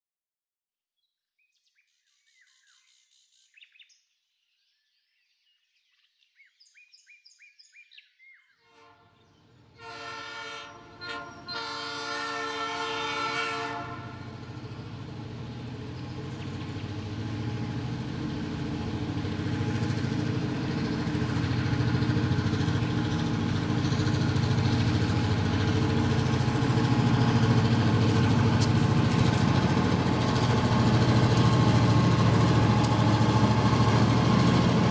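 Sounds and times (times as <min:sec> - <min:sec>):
diesel locomotive horn: 0:08.6 - 0:34.9
diesel locomotive engine running: 0:08.9 - 0:34.9.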